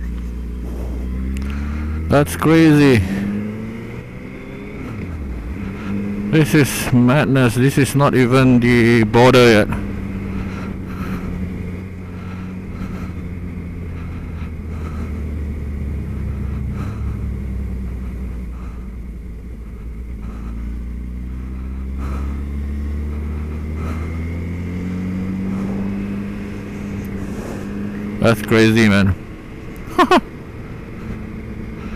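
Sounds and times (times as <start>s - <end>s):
motorcycle engine running: 0.0s - 31.9s.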